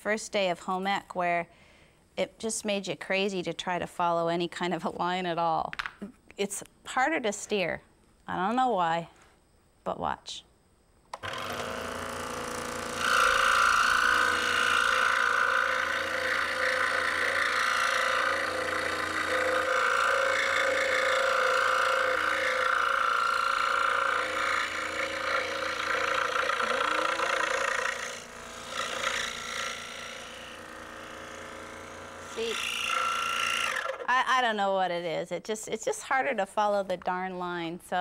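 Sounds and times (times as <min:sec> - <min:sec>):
scroll saw cutting wood: 0:11.2 - 0:34.1.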